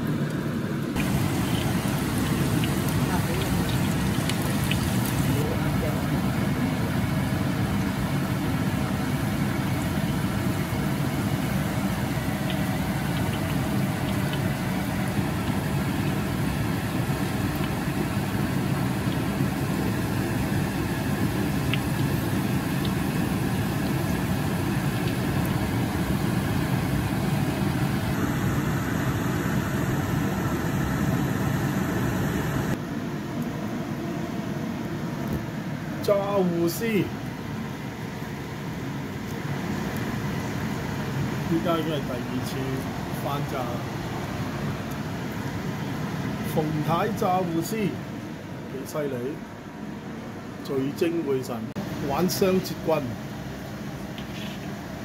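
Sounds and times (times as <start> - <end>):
deep-frying sizzle with pops: 0.0 - 28.7
mechanical hum: 0.0 - 55.0.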